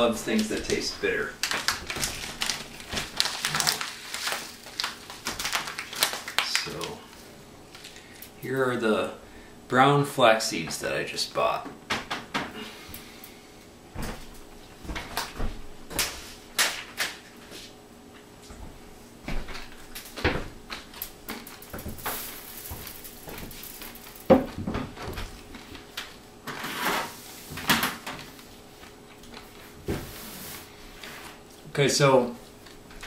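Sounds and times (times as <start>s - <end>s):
seeds rustling: 21.3s - 24.3s.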